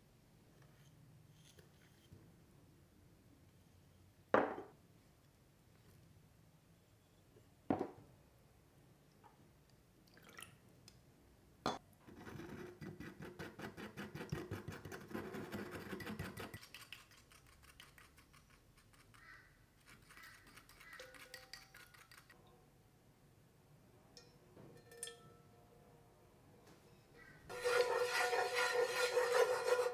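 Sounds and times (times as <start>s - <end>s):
whisk clinking against ceramic bowl: 20.1s - 22.4s.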